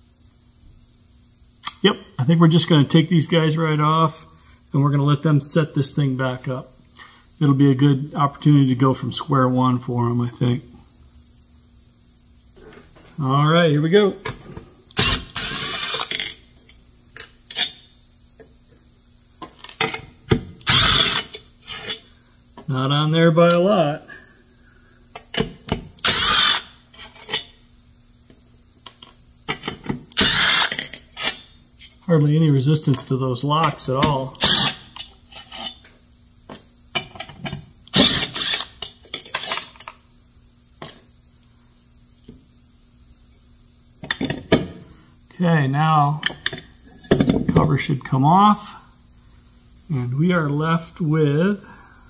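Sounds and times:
cordless driver spinning: 20.6s - 21.4s, 26.0s - 26.7s, 34.4s - 34.8s, 37.9s - 38.8s.

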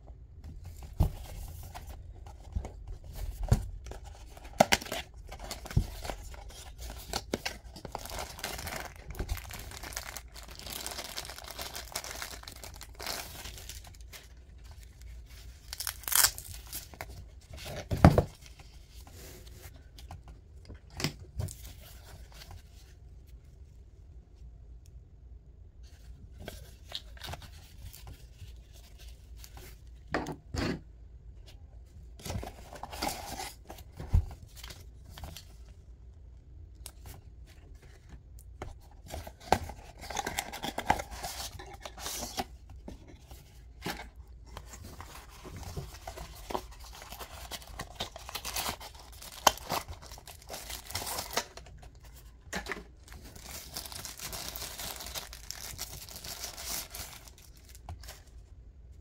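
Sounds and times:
box and holster rustling: 0.7s - 20.2s, 32.2s - 35.5s, 38.8s - 58.2s.

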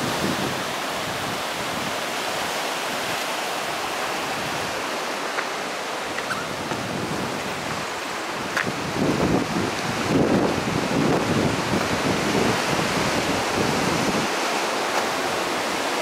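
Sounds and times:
surf washing over rocks: 0.0s - 16.0s
wind buffeting microphone: 6.0s - 16.0s.

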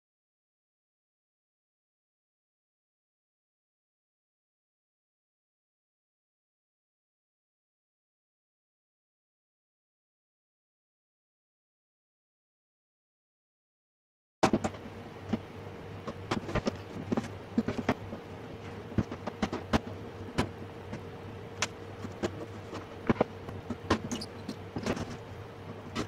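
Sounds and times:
steady low hum: 14.4s - 26.0s.

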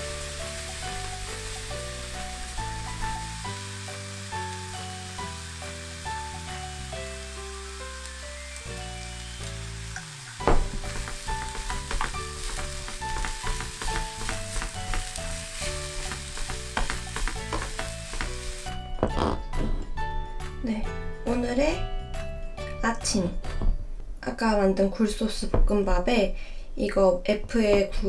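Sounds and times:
rice sizzling in a frying pan: 0.0s - 18.8s
background music: 0.0s - 25.9s.

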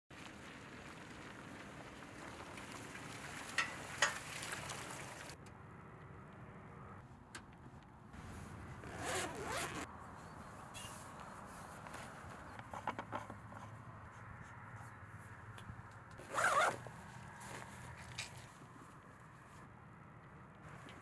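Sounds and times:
zipper pulled open: 8.2s - 9.9s, 16.2s - 18.4s.

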